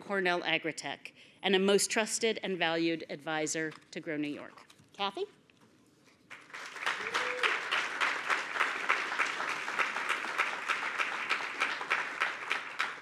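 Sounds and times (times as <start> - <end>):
audience applauding: 6.3 - 13.0.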